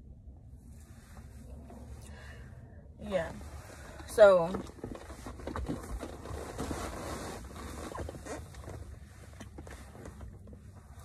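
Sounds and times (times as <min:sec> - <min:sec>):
low steady hum: 0:00.0 - 0:11.0
windbreaker rustling: 0:03.1 - 0:11.0.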